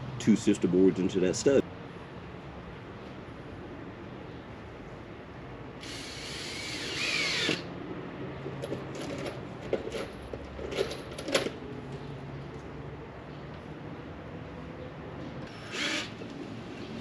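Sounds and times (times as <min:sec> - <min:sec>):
power drill driving screws: 0:05.8 - 0:07.7, 0:15.5 - 0:16.2.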